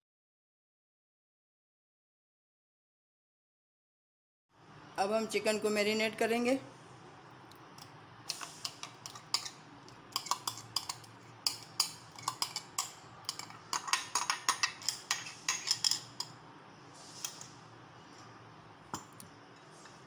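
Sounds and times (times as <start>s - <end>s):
spoon clinking against glass bowl: 8.6s - 16.4s.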